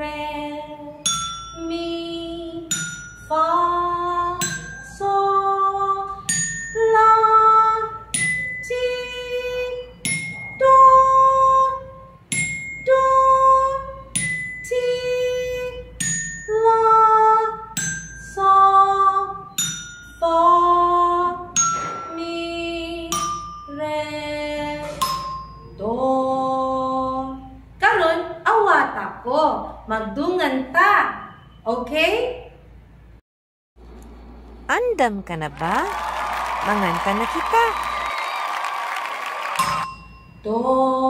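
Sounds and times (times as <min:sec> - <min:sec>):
woman singing scale: 0:00.0 - 0:27.6, 0:40.3 - 0:41.0
bell-like ding: 0:21.6 - 0:22.2, 0:39.6 - 0:40.5.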